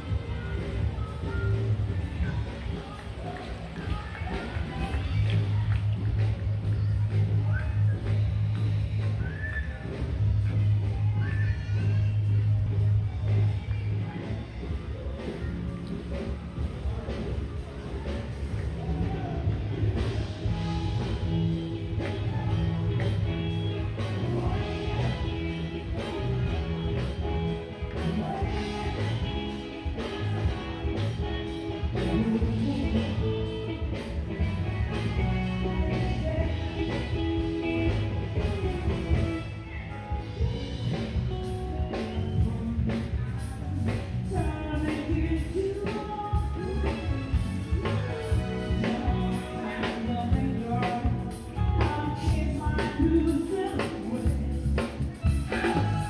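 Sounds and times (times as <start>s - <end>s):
distant live band playing: 0.0s - 56.0s
drums: 0.0s - 56.0s
keyboard: 0.0s - 56.0s
person singing: 18.8s - 40.6s, 41.8s - 56.0s.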